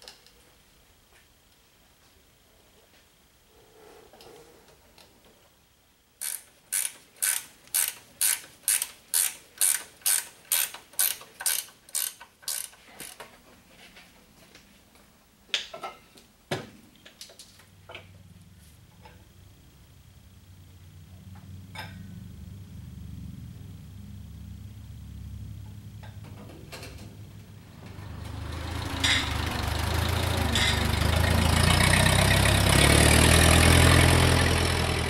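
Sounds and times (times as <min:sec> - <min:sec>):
ratchet wrench clicking: 0:06.2 - 0:13.2.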